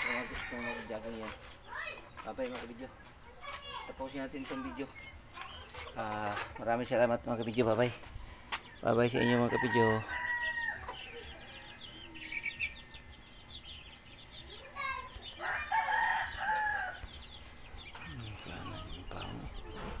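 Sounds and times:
rooster crowing: 0.0 - 0.9, 9.2 - 10.9, 15.4 - 17.0.

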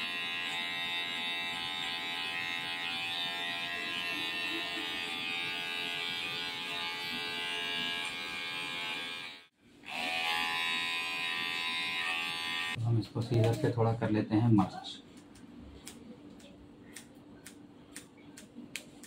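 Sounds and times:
electric hair clipper running: 0.0 - 12.8.

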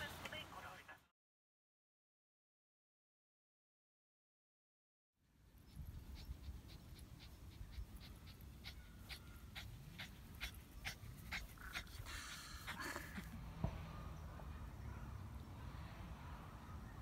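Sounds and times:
dog panting: 5.6 - 13.3.

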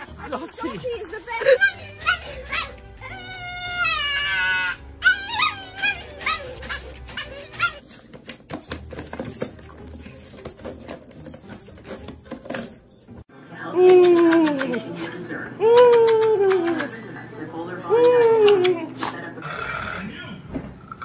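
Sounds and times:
puppy yipping and whining: 1.7 - 7.9
puppy howling: 1.8 - 7.8.

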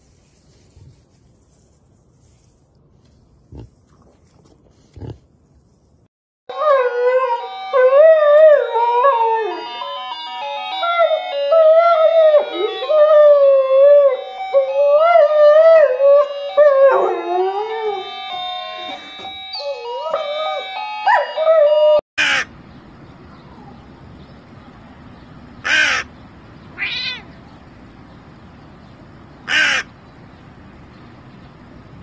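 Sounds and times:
crow cawing: 22.2 - 22.5, 25.6 - 26.1, 29.5 - 29.9.

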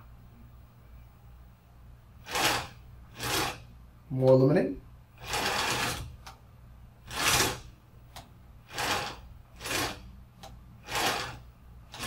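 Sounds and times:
motor whirring in short bursts: 2.2 - 3.7, 5.2 - 6.2, 7.1 - 7.7, 8.7 - 10.1, 10.8 - 12.0.

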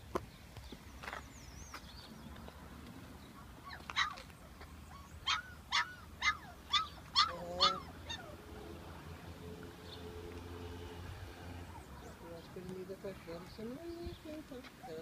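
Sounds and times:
dog yelping: 3.6 - 8.4.

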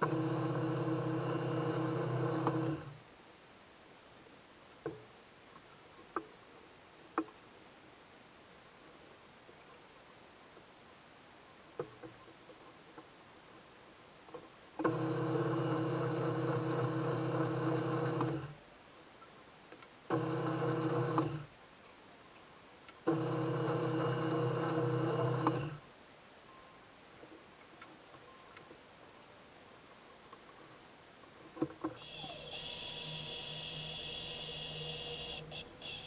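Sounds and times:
power drill boring into wood: 32.0 - 36.0.

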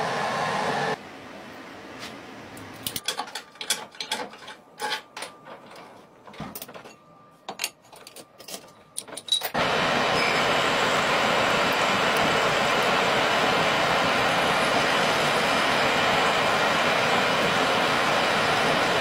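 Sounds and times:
metallic clanks and clicks: 2.8 - 9.6.

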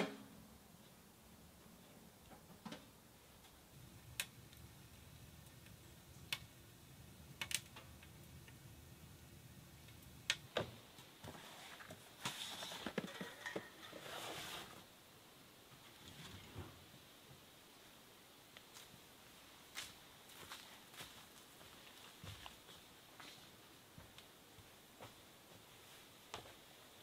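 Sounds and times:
wood fire crackling: 0.1 - 27.0
rustling: 10.0 - 14.9.

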